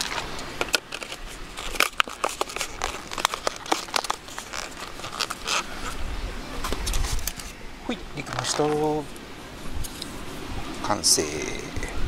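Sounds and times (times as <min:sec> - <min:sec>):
plastic packaging crinkling: 0:00.0 - 0:06.0.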